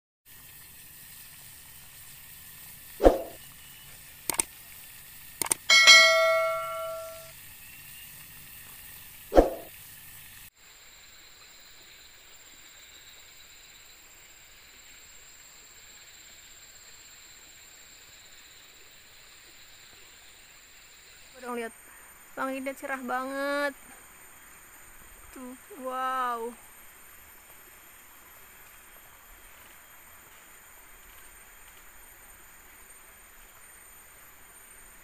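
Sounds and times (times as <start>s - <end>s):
quick clicks: 4.3s - 4.5s, 5.4s - 5.7s
high-pitched insect drone: 5.4s - 8.5s, 10.7s - 35.0s
bell-like chime: 5.7s - 7.3s
sharp hit: 5.7s - 7.3s.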